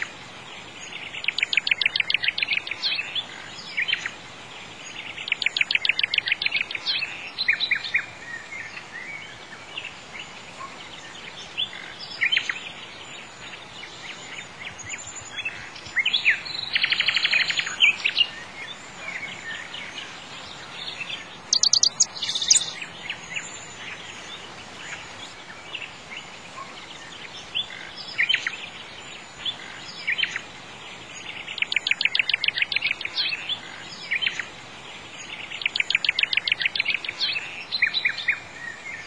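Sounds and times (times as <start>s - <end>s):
songbirds chirping and singing: 0.0s - 39.0s
steady hiss: 0.0s - 39.0s
rapid bird trills: 0.8s - 4.2s, 14.1s - 26.8s, 31.2s - 34.5s, 35.3s - 39.0s.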